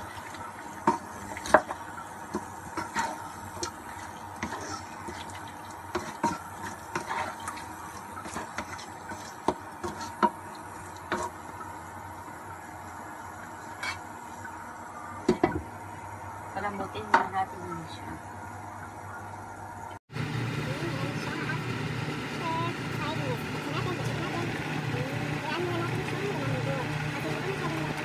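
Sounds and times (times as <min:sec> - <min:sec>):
wooden spatula scraping a wok: 0:00.8 - 0:10.3, 0:11.1 - 0:11.4, 0:13.6 - 0:14.1.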